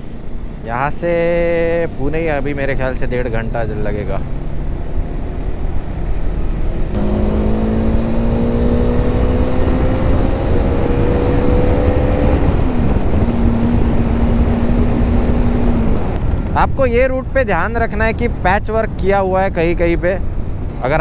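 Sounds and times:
wind and road noise: 0.0 - 21.0
motorcycle engine running: 6.9 - 16.2.

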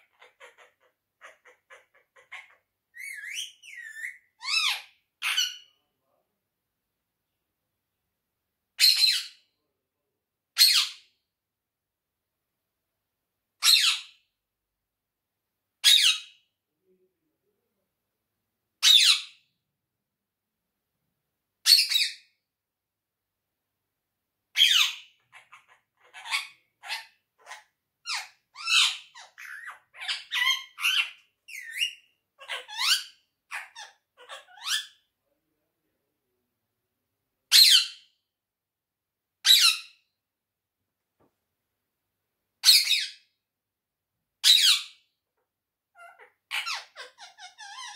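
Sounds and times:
parakeet chattering calls: 0.0 - 5.7, 24.6 - 35.0, 46.0 - 47.9
parakeet squawking: 0.0 - 5.7, 24.6 - 35.0, 45.9 - 47.9.

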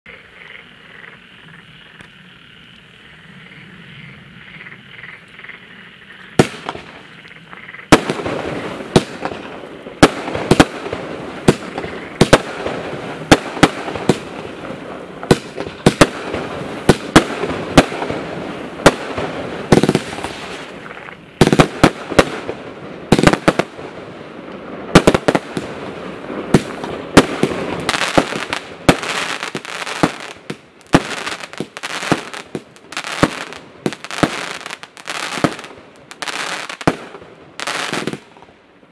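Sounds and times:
firework shots and bursting shells: 6.4 - 7.0, 7.9 - 20.8, 21.4 - 24.0, 24.9 - 38.5
firework hiss: 7.9 - 38.4.

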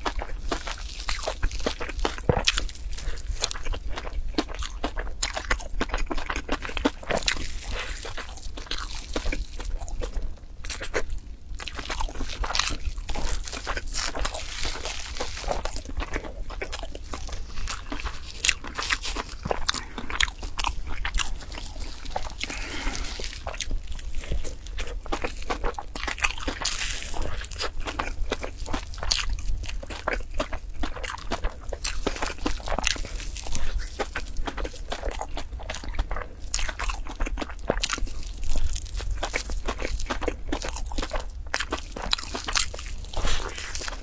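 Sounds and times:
person chewing crunchy food: 0.0 - 44.0.

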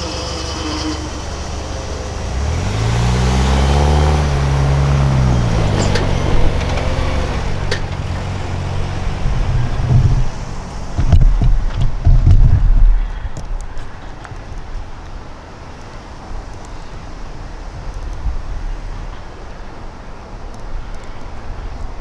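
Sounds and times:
vehicle engine passing: 0.0 - 11.2
heavy low thumps: 9.2 - 13.0.

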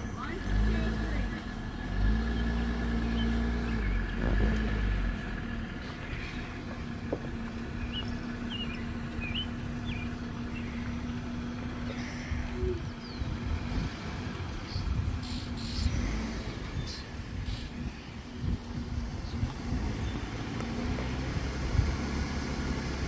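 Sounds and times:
heavy low rumble: 0.0 - 23.0
vehicle engine idling: 0.0 - 23.0
bird chirping: 2.2 - 4.6, 7.4 - 13.4, 14.5 - 20.8.

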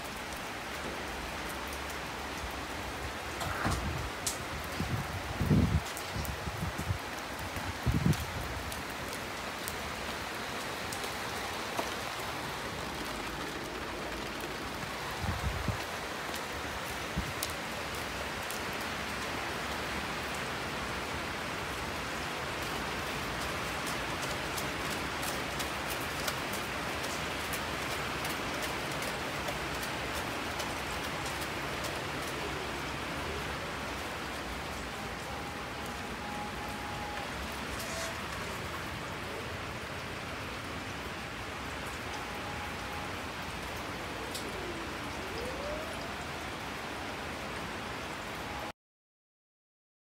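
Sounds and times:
rain falling on pavement: 0.0 - 48.7
sharp raindrop ticks: 3.3 - 20.4, 21.7 - 33.0.

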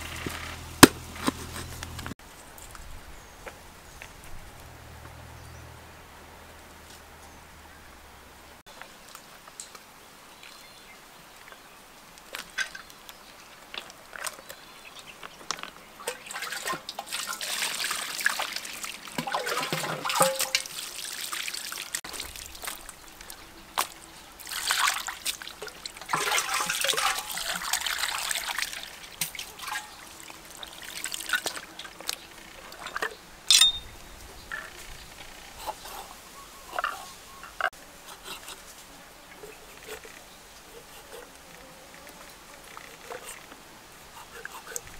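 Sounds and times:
wet trickling and squelching: 12.2 - 33.2.

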